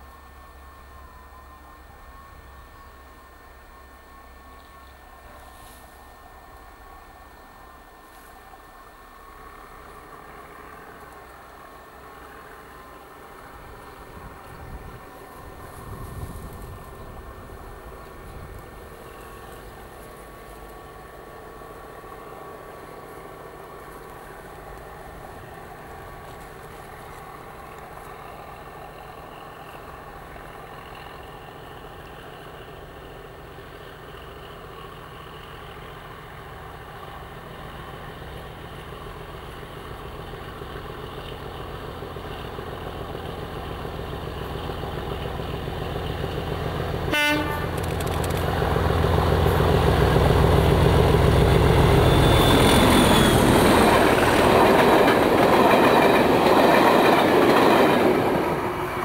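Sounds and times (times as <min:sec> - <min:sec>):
diesel locomotive engine: 0:00.0 - 0:59.0
train wheel and rail noise: 0:00.0 - 0:59.0
train horn blast: 0:47.0 - 0:47.9.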